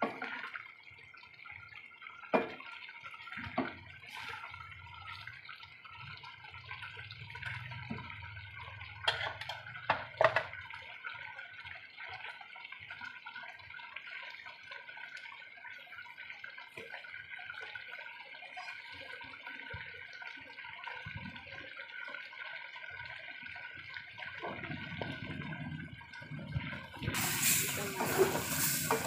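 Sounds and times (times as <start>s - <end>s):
thick sauce bubbling and popping: 0.0s - 29.0s.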